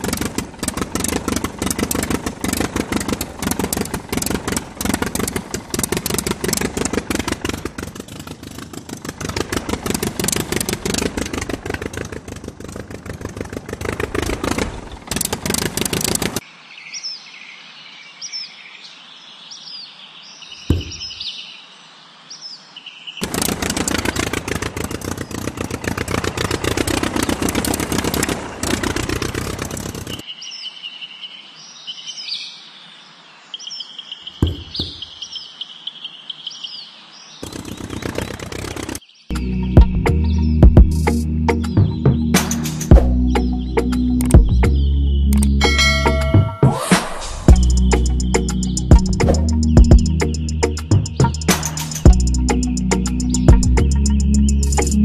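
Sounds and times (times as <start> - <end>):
engine chugging: 0.0 - 16.4, 23.2 - 30.2, 37.4 - 46.6, 47.5 - 55.0
birds chirping: 0.0 - 55.0.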